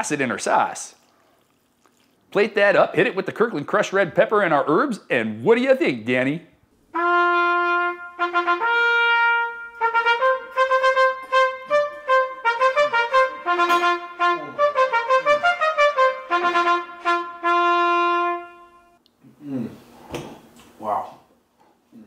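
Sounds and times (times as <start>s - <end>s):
trumpet playing: 6.9s - 19.0s.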